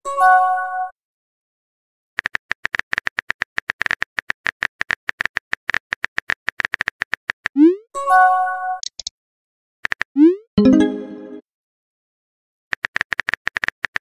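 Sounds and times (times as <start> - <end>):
phone keyboard typing clicks: 8.8 - 9.1
message chime: 10.6 - 11.4.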